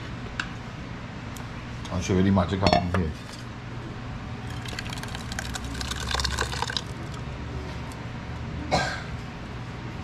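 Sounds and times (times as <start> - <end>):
thick sauce pouring into saucepan: 4.4 - 7.1.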